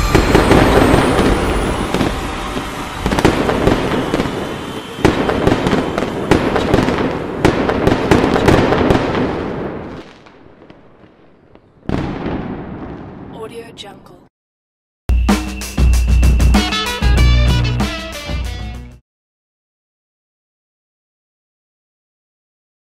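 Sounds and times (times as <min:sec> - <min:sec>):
fireworks crackling: 0:00.0 - 0:13.7
fireworks bangs: 0:00.0 - 0:14.0.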